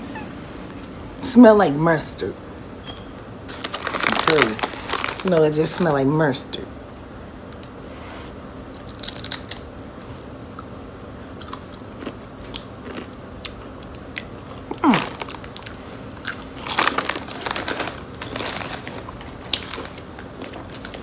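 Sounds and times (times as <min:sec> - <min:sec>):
potato chips crunching: 0:03.5 - 0:06.0, 0:08.7 - 0:10.3, 0:11.3 - 0:21.0
foil chip bag crinkling: 0:03.5 - 0:06.5, 0:14.4 - 0:21.0.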